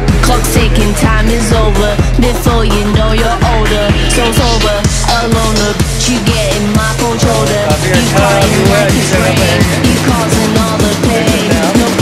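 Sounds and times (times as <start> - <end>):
music with drum beat and melody: 0.0 - 12.0.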